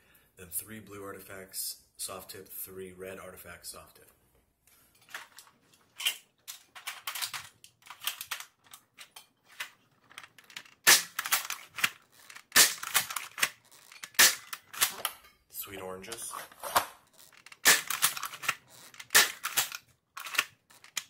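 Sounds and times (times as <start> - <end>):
toy blaster clicks and scrapes: 10.1 - 15.1, 16.5 - 21.0
toy blaster shot crack: 10.8 - 15.1, 17.6 - 20.5.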